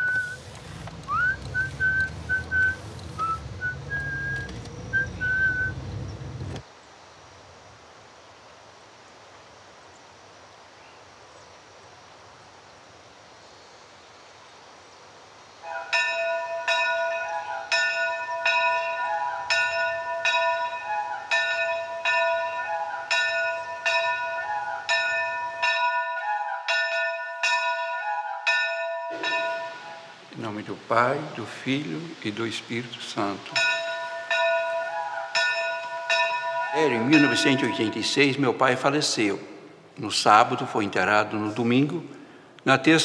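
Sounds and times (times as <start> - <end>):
church bells ringing: 15.8 - 39.2
faint background hiss: 29.1 - 34.6.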